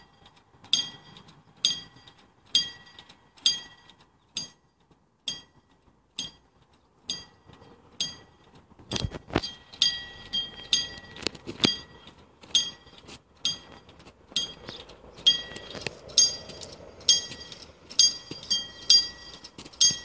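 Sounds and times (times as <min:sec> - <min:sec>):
level-crossing warning bell: 0:00.0 - 0:04.5, 0:07.1 - 0:20.0.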